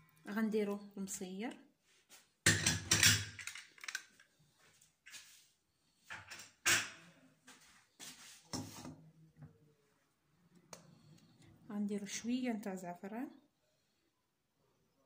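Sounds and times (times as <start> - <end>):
utensils knocking and rustling: 2.5 - 4.2.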